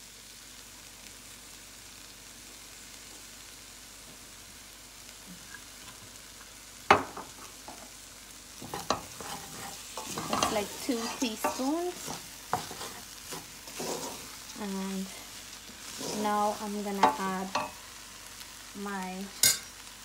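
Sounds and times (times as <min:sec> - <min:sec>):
rice frying with faint sizzle: 0:00.0 - 0:20.0
wooden spoon scraping pot: 0:08.6 - 0:17.8.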